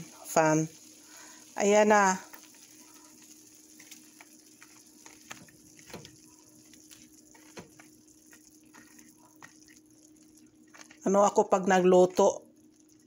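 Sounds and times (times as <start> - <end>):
ceiling fan humming: 0.0 - 13.0
spoon stirring shrimp in pan: 0.7 - 11.0.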